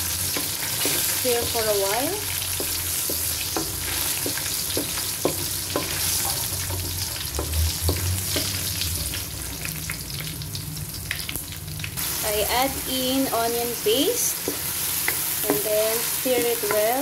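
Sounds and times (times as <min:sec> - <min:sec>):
spices sizzling in hot oil: 0:00.0 - 0:17.0
wooden spoon knocking metal pan: 0:14.4 - 0:17.0.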